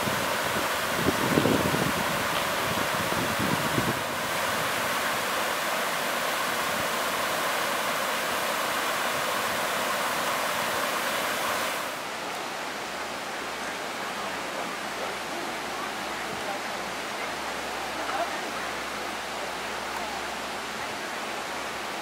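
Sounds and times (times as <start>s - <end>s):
water splashing: 0.0s - 12.0s.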